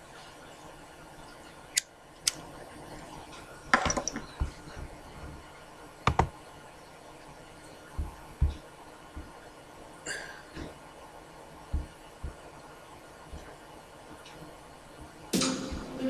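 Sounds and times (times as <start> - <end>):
faint steady hiss: 0.0 - 16.0
soft low thumps: 7.9 - 9.4, 11.7 - 12.5.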